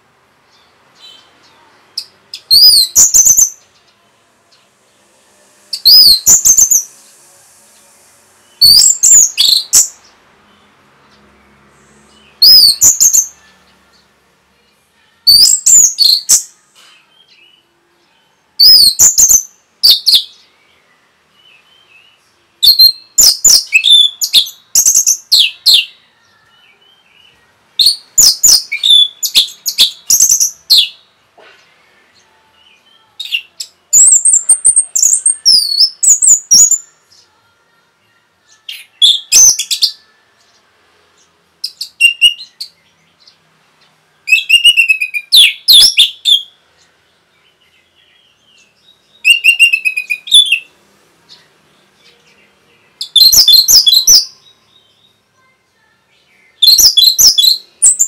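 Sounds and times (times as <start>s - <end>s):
thrush singing warbled phrases: 11.8s - 20.3s, 32.0s - 40.6s.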